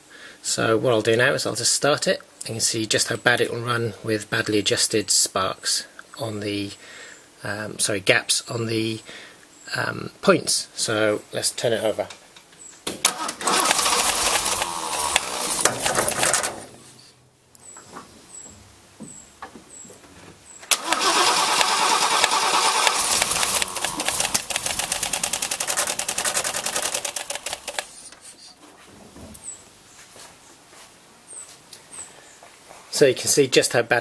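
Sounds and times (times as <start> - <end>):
car engine cranking and starting: 13.0 - 16.6, 20.7 - 27.9.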